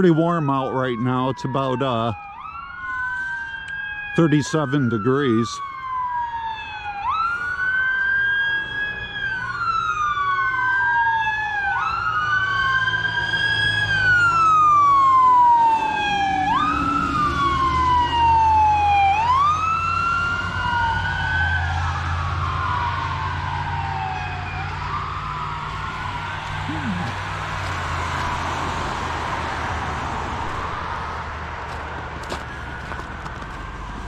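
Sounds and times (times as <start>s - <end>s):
fire truck sirens wailing: 0.0s - 34.0s
truck engine rumble: 13.8s - 34.0s.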